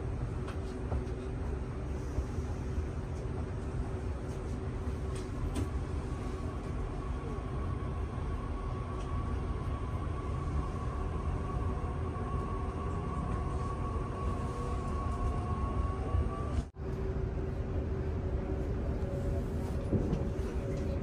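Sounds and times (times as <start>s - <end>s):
train rumble: 0.0s - 21.0s.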